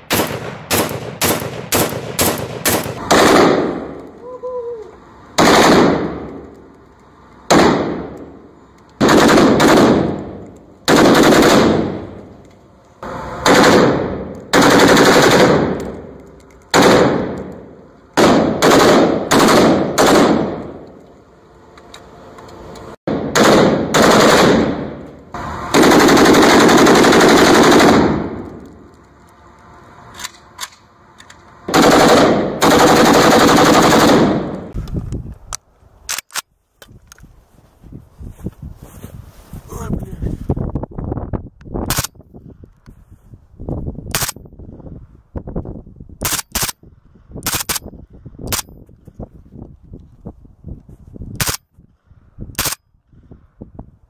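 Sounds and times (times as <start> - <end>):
automatic gunfire bursts echoing: 0.0 - 4.0, 5.4 - 6.2, 9.0 - 12.2, 13.4 - 15.9, 16.7 - 17.5, 18.2 - 20.6, 23.1 - 25.0, 25.7 - 28.4, 31.7 - 34.8.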